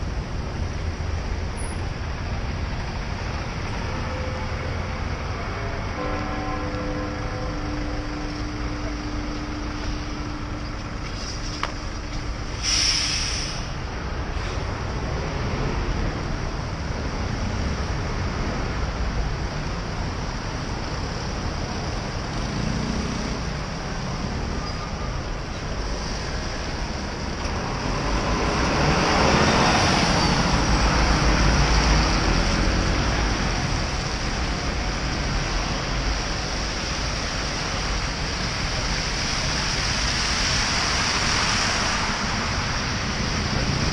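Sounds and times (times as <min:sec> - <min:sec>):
engines rumbling: 0:00.0 - 0:43.9
tyre hiss on wet road: 0:10.8 - 0:14.8, 0:35.2 - 0:43.9.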